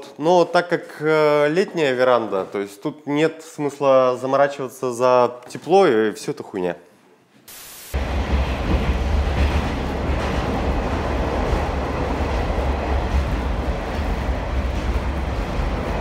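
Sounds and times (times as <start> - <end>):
subway train running: 7.7 - 16.0.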